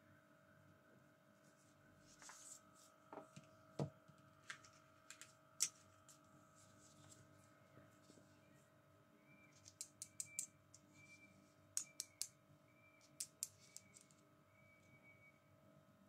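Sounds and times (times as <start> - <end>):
plastic toy tweezers clicking: 9.6 - 10.8, 11.8 - 12.4, 13.0 - 14.2.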